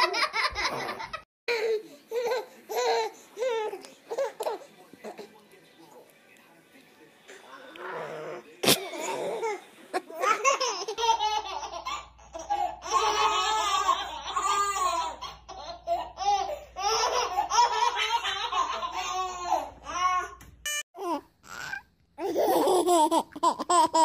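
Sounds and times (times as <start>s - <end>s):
babies giggling: 8.6s - 19.7s, 21.5s - 24.0s.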